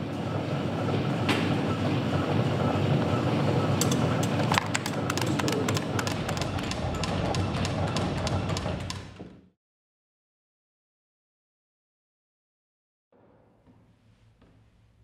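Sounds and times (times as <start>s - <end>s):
player piano mechanism whooshing hum: 0.0s - 9.1s.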